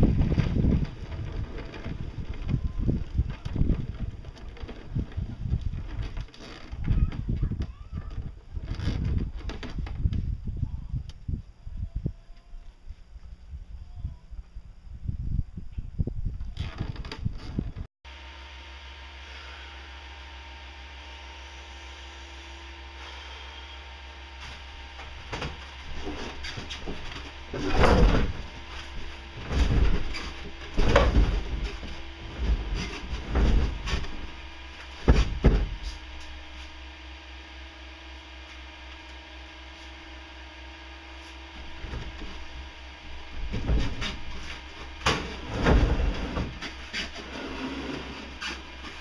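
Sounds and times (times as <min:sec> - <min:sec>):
low electrical hum: 0:00.0 - 0:49.0
wooden crate scraping thud: 0:24.4 - 0:36.0, 0:43.3 - 0:49.0.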